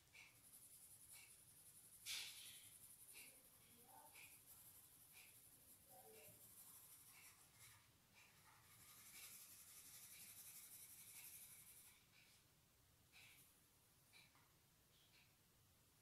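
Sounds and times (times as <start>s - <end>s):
crayon scratching on paper: 0.2s - 12.1s.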